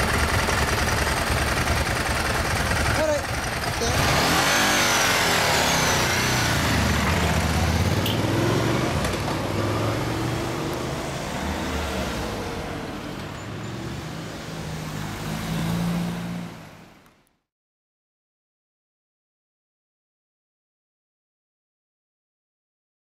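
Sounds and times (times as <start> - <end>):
motorcycle engine revving: 0.0 - 13.0
street traffic: 0.0 - 17.5.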